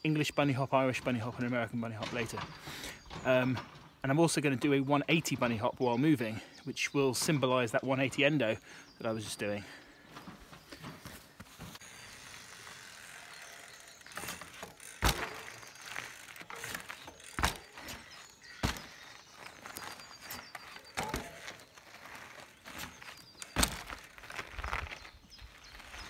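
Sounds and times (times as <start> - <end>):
bike tyres crunching on gravel: 0.3 - 26.0
bike wheels landing thuds: 10.1 - 26.0.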